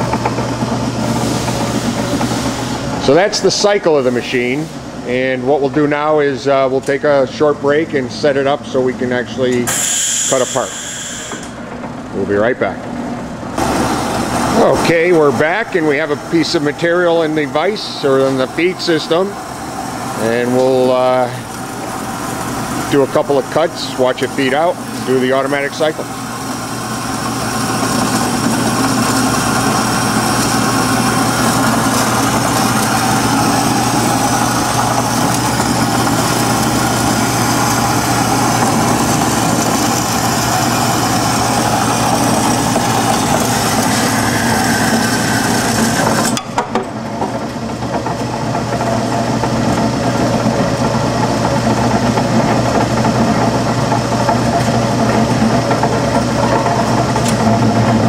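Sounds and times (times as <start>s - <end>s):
band saw humming: 0.0s - 58.0s
saw blade cutting metal: 9.7s - 11.6s, 27.8s - 46.5s.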